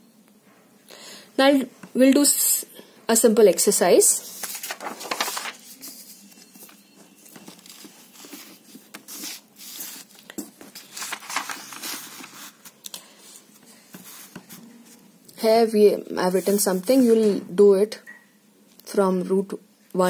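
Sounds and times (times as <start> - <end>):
paper rustling and crinkling: 4.2 - 15.0.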